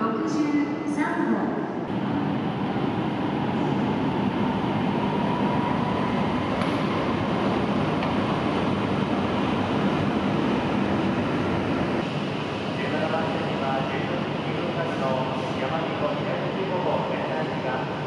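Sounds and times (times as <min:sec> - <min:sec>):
train rolling past: 0:01.8 - 0:18.0.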